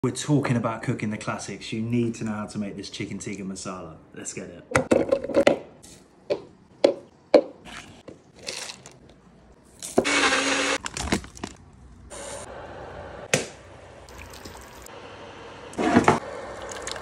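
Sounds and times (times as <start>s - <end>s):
blender running: 10.0s - 10.8s.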